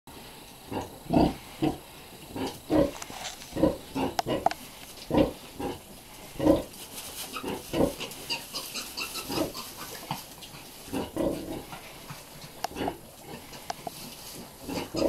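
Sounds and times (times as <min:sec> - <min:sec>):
sow grunting: 0:00.7 - 0:15.0
piglets squeaking: 0:06.4 - 0:11.5, 0:14.7 - 0:15.0.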